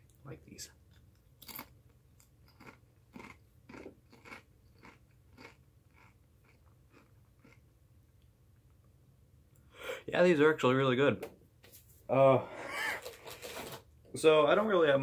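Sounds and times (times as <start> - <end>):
chewing crunchy chips: 0.9 - 7.7.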